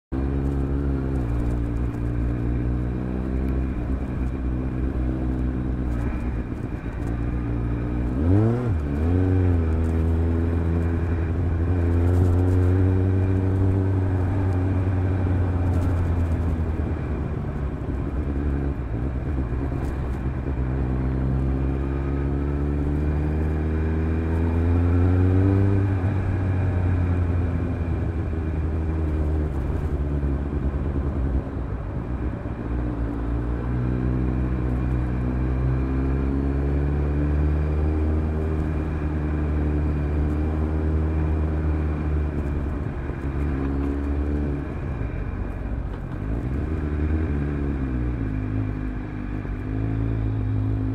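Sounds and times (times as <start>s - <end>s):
motorcycle engine running: 0.2s - 50.9s.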